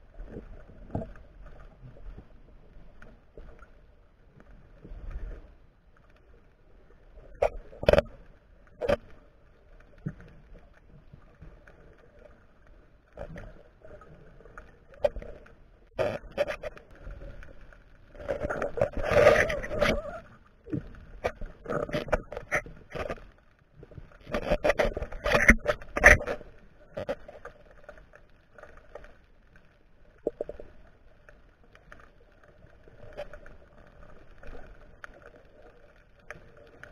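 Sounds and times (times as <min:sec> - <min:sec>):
underwater knocks and clicks: 0:00.1 - 0:03.8, 0:07.2 - 0:29.2, 0:30.0 - 0:36.9
underwater rush of noise: 0:12.7 - 0:29.1.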